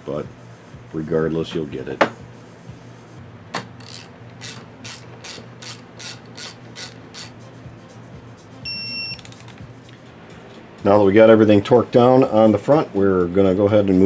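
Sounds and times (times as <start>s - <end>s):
ratchet wrench clicking: 3.8s - 7.4s.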